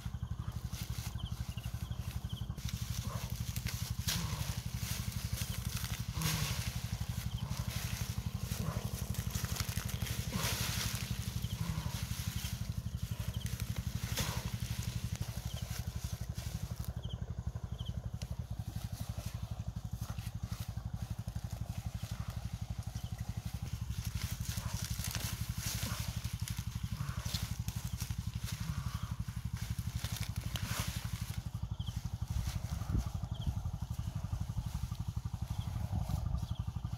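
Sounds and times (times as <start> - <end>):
low mechanical rumble: 0.0 - 36.9
lettuce leaves rustling: 0.4 - 17.0, 23.2 - 33.6.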